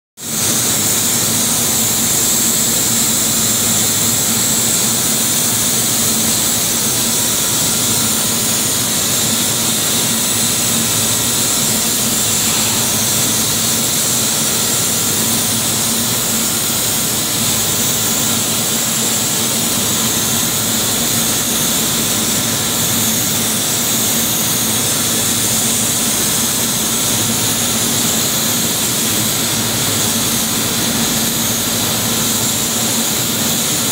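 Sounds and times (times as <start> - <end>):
industrial machinery hissing roar: 0.2 - 33.9
low machinery hum: 0.4 - 17.6.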